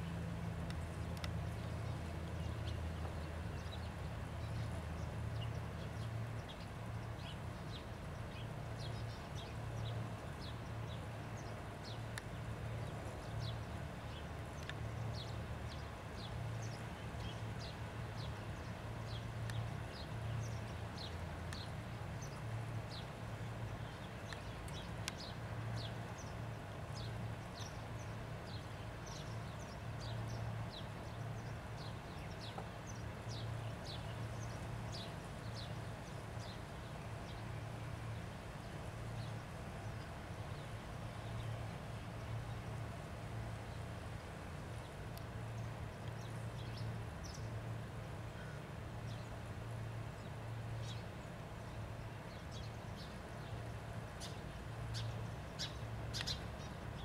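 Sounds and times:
birds chirping: 0:48.3 - 0:57.0.

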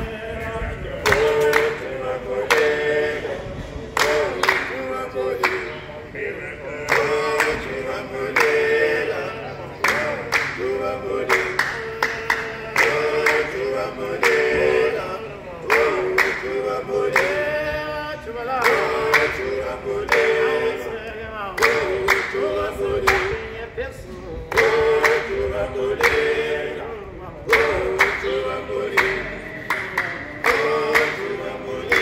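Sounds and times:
group singing in harmony: 0:00.0 - 0:32.0
sharp hand claps: 0:01.0 - 0:02.8, 0:04.0 - 0:05.7, 0:09.8 - 0:14.5, 0:15.6 - 0:17.4, 0:18.6 - 0:20.5, 0:21.6 - 0:23.5, 0:24.5 - 0:26.4, 0:27.5 - 0:32.0.

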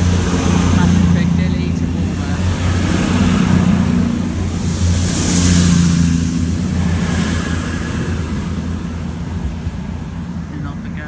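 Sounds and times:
train diesel engine drone: 0:00.0 - 0:11.0
train wheel noise: 0:00.0 - 0:11.0
rush of air: 0:01.9 - 0:10.3.

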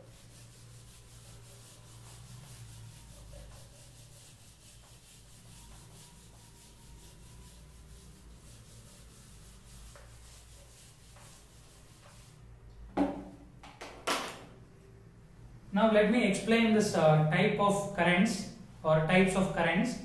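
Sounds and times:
eraser rubbing whiteboard: 0:00.0 - 0:12.5.

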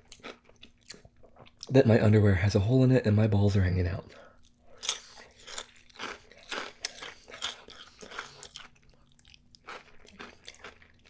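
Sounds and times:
crunchy chewing: 0:04.4 - 0:11.0.

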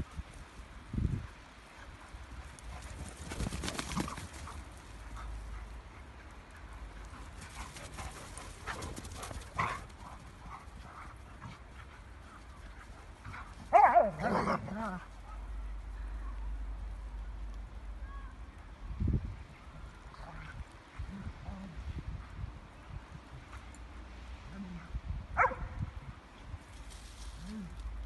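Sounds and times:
dog paws scuffling in snow: 0:26.6 - 0:28.0.

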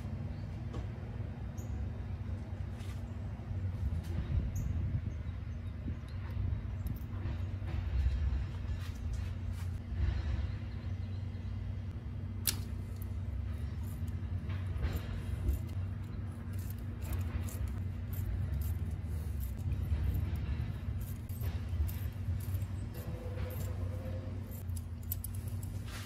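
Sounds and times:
low hum: 0:00.0 - 0:26.0
metallic tool clicks: 0:12.4 - 0:13.1, 0:21.0 - 0:25.8.

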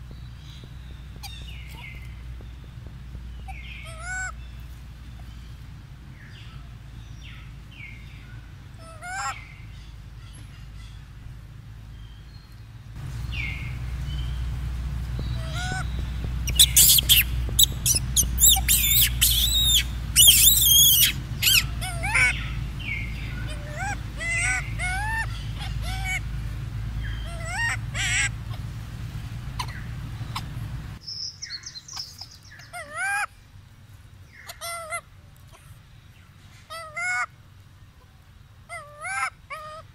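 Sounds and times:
monkeys chirping: 0:00.5 - 0:02.3, 0:03.4 - 0:04.5, 0:08.8 - 0:11.0, 0:13.1 - 0:28.7, 0:29.4 - 0:31.0, 0:31.6 - 0:33.3
monkeys squealing: 0:03.5 - 0:04.4, 0:08.8 - 0:09.5, 0:15.3 - 0:26.3, 0:27.0 - 0:28.7, 0:29.6 - 0:30.6, 0:34.4 - 0:35.0, 0:38.7 - 0:39.9.

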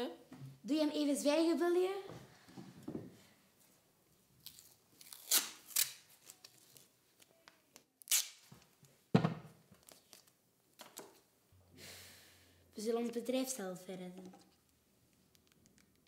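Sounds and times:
adhesive tape ripping: 0:04.4 - 0:06.9, 0:08.0 - 0:08.6
tape rustling: 0:04.4 - 0:09.0, 0:09.6 - 0:11.3.

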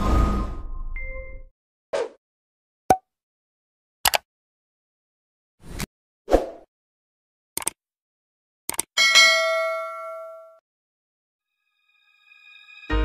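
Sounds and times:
sharp mouse clicks: 0:08.7 - 0:08.9
notification bell ding: 0:09.0 - 0:10.6.

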